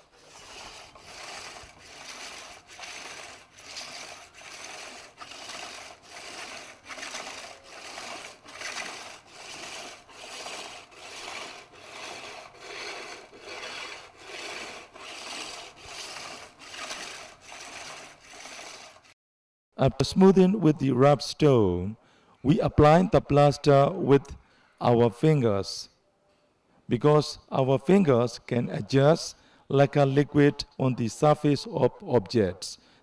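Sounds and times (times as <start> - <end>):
stone rasping on lacquer bowl: 0.0 - 19.1.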